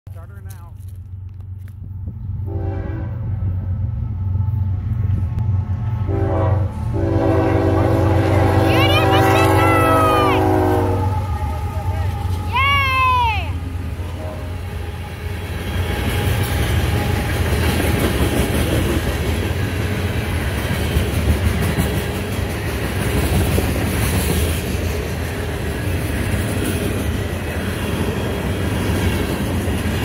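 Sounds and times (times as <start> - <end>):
freight train passing: 0.2 - 30.0
train wheel clatter: 15.5 - 30.0.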